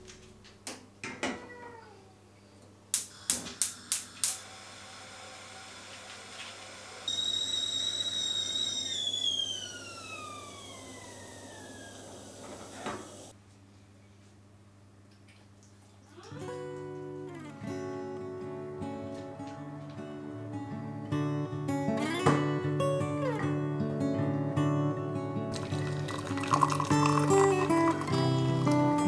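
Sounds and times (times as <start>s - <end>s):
kettle whistling: 3.2s - 13.3s, 25.6s - 29.0s.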